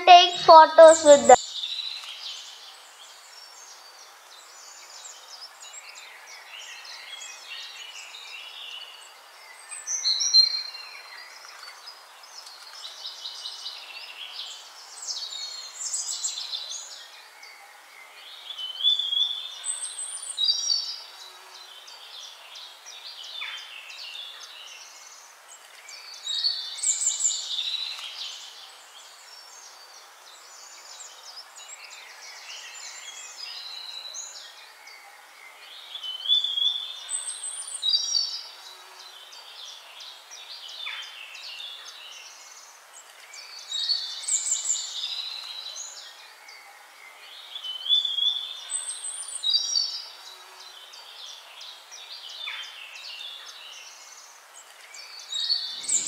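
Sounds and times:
steady hiss: 0:53.8 - 0:56.0.

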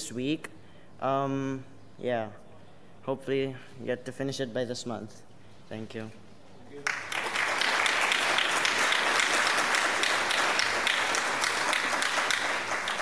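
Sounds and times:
audience applauding: 0:06.8 - 0:13.0.

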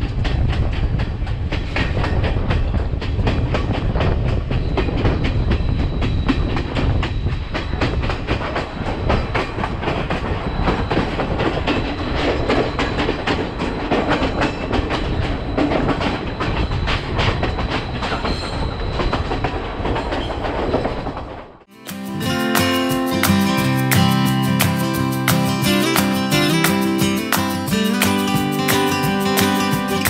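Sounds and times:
wheel clicks over rail joints: 0:00.0 - 0:21.6
train low rumble: 0:00.0 - 0:30.0.

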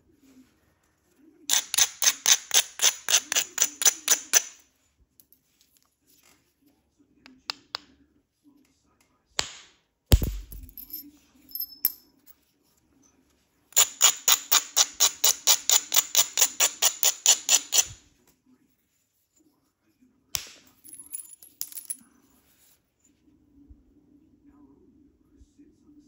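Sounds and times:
stone strikes on stone: 0:09.4 - 0:11.0.

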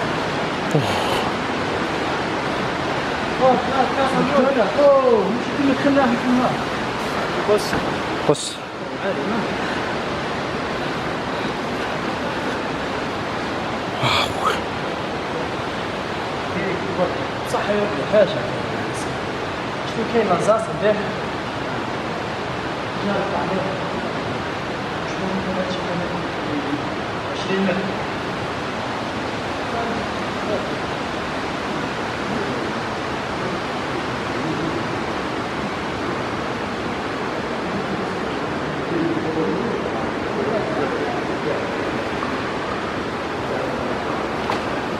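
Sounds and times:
water rushing: 0:00.0 - 0:17.4.

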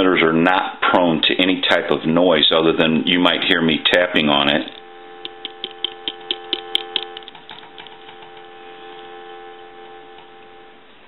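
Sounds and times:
telephone dial tone: 0:04.6 - 0:10.9.

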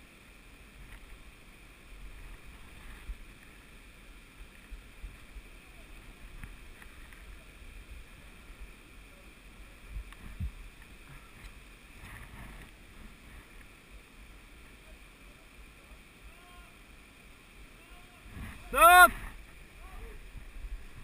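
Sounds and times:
wind rumble on microphone: 0:09.8 - 0:13.6, 0:18.1 - 0:21.0.

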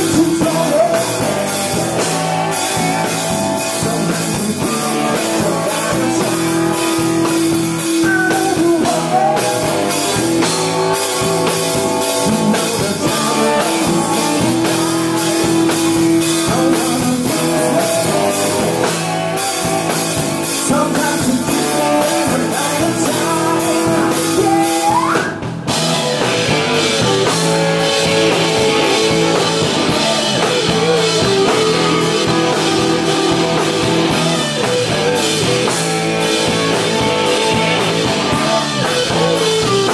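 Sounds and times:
man singing: 0:00.0 - 0:19.6, 0:20.4 - 0:25.3, 0:37.5 - 0:39.9
bass guitar: 0:00.0 - 0:39.9
drum kit: 0:00.0 - 0:39.9
electric guitars: 0:00.0 - 0:39.9.

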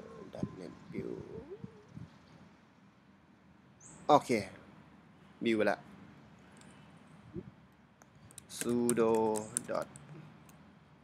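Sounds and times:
man murmuring: 0:00.0 - 0:01.7
faint clicks: 0:06.4 - 0:06.8.

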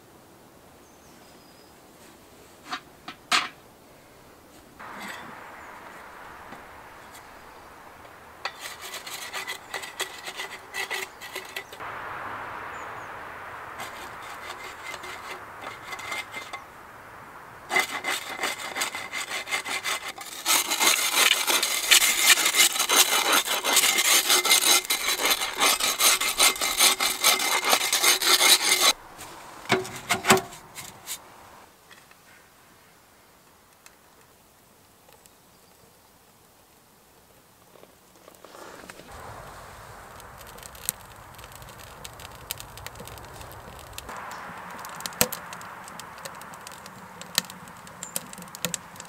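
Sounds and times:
hand saw cutting wood: 0:08.5 - 0:11.8, 0:17.7 - 0:29.0.

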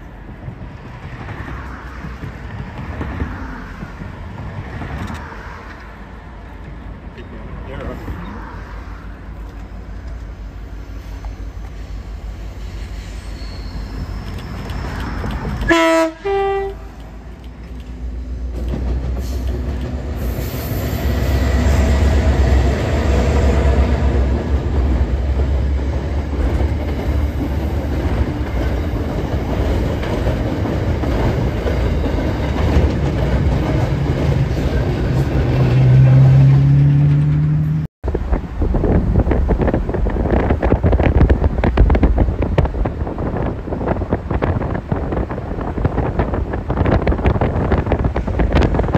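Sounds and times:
wind and road noise in car: 0:00.0 - 0:12.9, 0:13.9 - 0:21.0, 0:21.8 - 0:48.9
locomotive engines rumbling: 0:00.0 - 0:48.9
train horn blast: 0:15.7 - 0:17.0.

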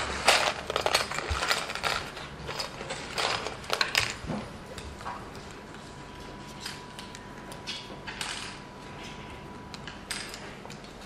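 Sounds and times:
plastic parts clicking and clattering: 0:00.0 - 0:04.4.

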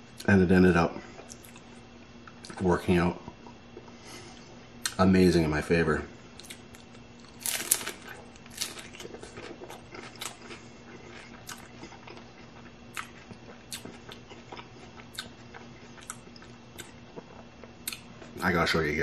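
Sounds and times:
chewing with crunches: 0:01.0 - 0:02.6, 0:06.3 - 0:18.6
crunchy taco bite: 0:06.3 - 0:18.5.

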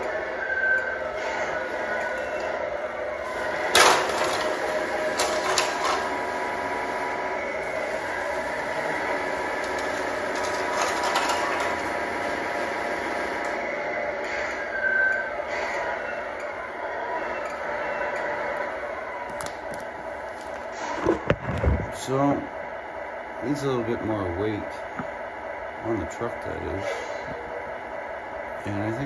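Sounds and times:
toy truck drivetrain whine: 0:00.0 - 0:22.1.

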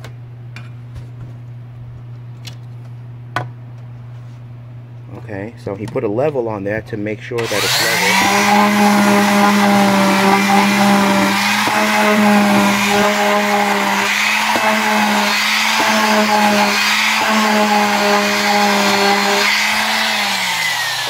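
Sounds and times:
electric palm sander humming: 0:07.4 - 0:21.0.

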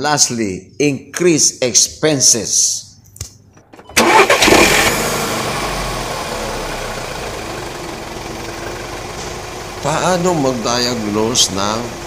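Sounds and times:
car engine starting and running: 0:03.5 - 0:12.0.

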